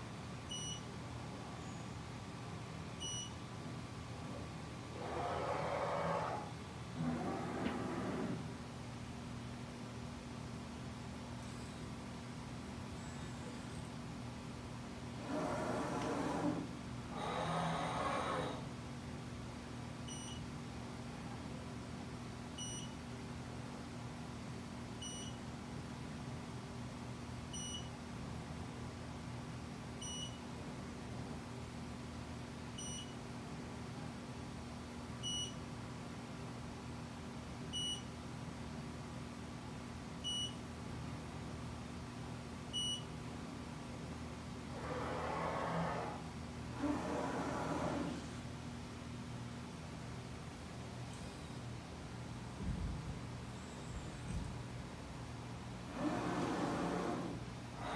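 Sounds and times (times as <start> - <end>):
steady low hum: 0.0 - 57.9
short high beeps: 0.5 - 0.8
short high machine beeps: 0.5 - 0.8, 3.0 - 3.4, 20.1 - 20.4, 22.6 - 23.0, 25.0 - 25.4, 27.6 - 27.9, 30.0 - 30.4, 32.8 - 33.2, 35.2 - 35.6, 40.3 - 40.6
machine axis drives whirring: 15.2 - 18.6.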